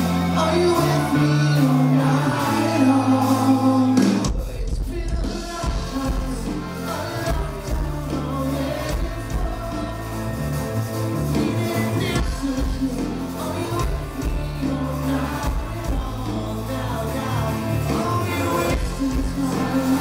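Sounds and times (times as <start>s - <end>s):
person singing: 0.0s - 20.0s
rock band playing live: 0.0s - 20.0s.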